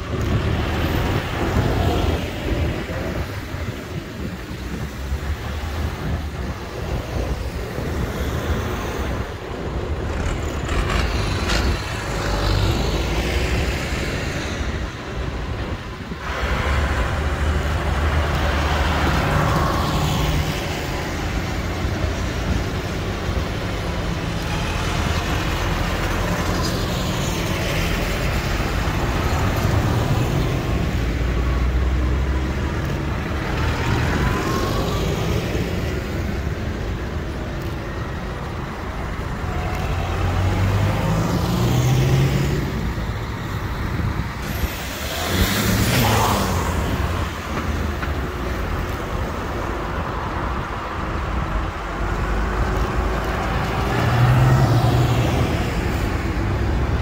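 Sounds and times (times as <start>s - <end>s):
tractor diesel engines passing: 0.0s - 57.0s
tyres hissing on wet road: 38.3s - 57.0s.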